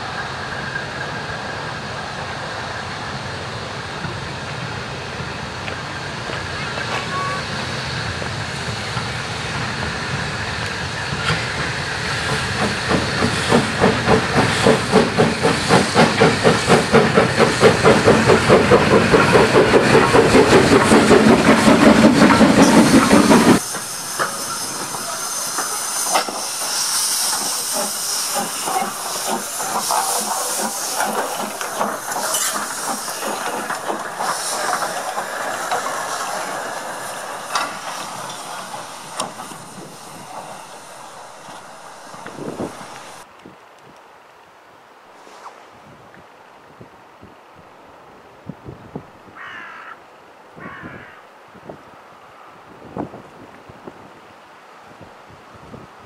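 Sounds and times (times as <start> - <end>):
steam hissing: 0.0 - 43.3
steam locomotive exhaust beats: 0.0 - 43.3
clanking: 13.4 - 43.2.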